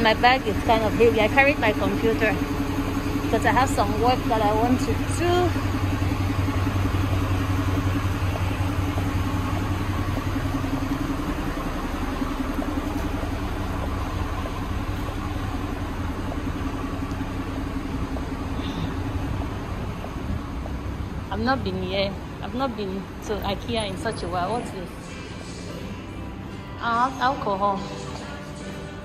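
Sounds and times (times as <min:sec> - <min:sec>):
low mechanical hum: 0:00.0 - 0:29.0.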